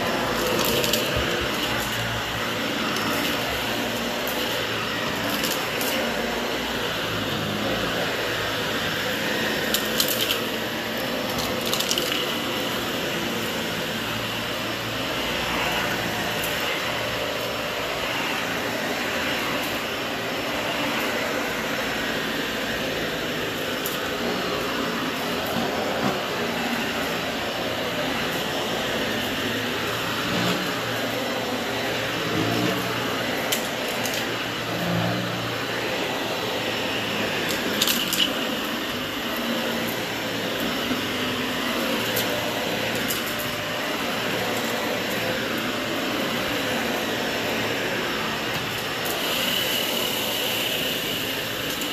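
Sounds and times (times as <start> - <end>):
upright vacuum cleaner running: 0.0 - 51.9.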